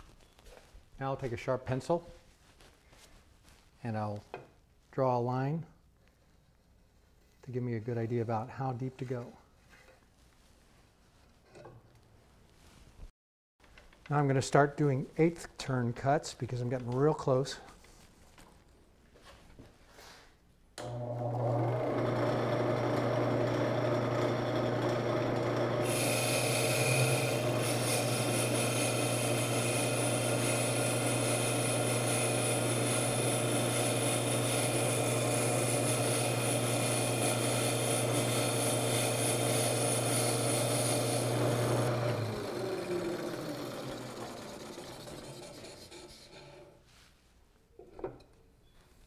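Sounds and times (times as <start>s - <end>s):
lathe motor humming: 20.8s - 46.7s
cutting tool hissing on wood: 25.8s - 42.3s.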